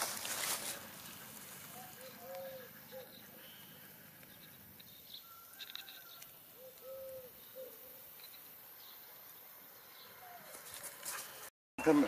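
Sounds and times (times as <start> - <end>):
dove cooing: 0.8 - 4.2, 6.5 - 8.1, 10.1 - 10.8
faint high chirps: 11.8 - 12.0.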